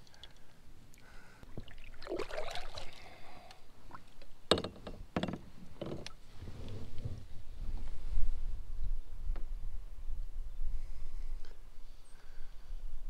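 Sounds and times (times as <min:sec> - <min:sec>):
water faintly moving: 0:00.0 - 0:04.4.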